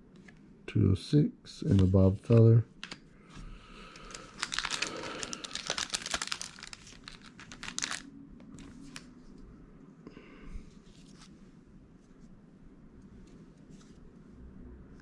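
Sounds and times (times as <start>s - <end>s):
cards and plastic packaging rustling: 1.7s - 9.2s.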